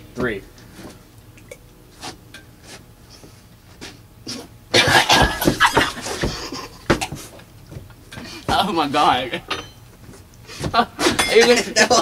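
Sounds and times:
person coughing and gagging: 4.7 - 6.7.

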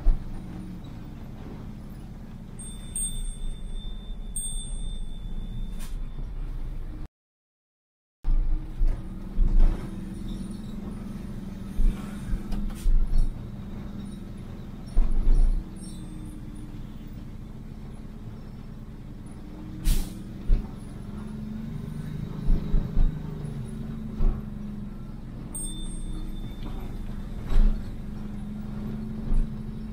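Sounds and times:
vehicle engine running: 0.0 - 7.0, 8.3 - 29.9.

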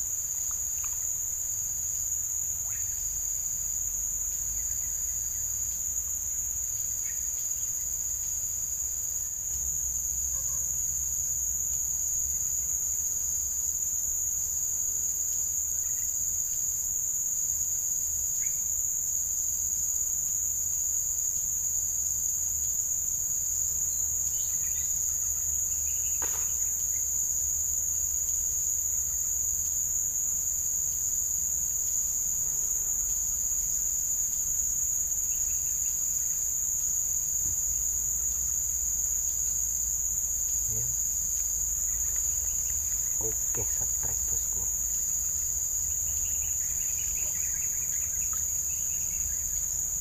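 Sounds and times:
pulsing insect trill: 0.0 - 50.0
insects shrilling: 34.0 - 49.8.

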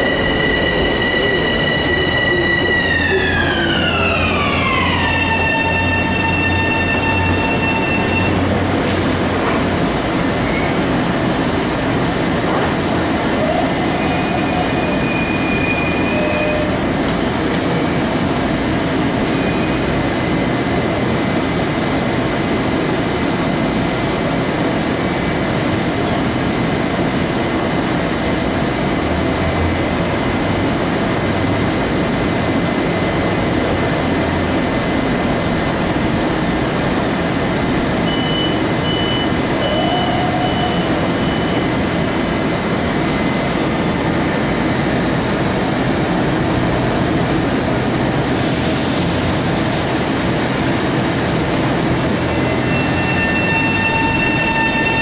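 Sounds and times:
electric train equipment rushing: 0.0 - 21.1.

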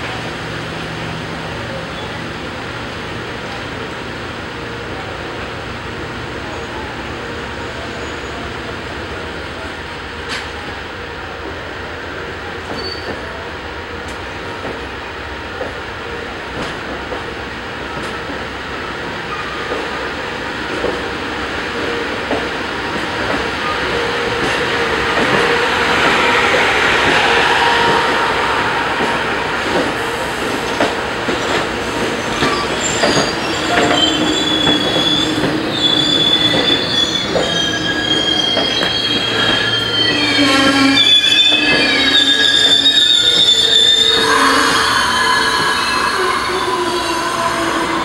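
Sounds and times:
train wheels rumbling and clicking: 10.2 - 10.8, 11.4 - 44.3
high-pitched wheel squeal: 24.5 - 48.0.

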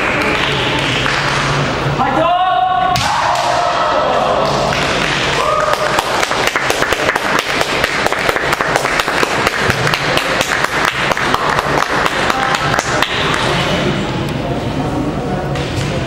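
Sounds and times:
spectators applauding: 4.7 - 13.5.

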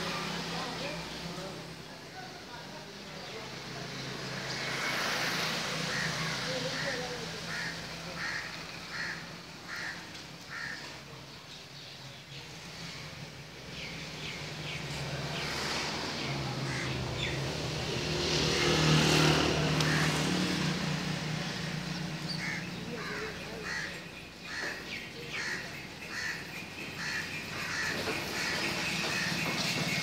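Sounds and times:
crows cawing: 4.5 - 11.1, 16.5 - 17.4, 18.4 - 30.0.

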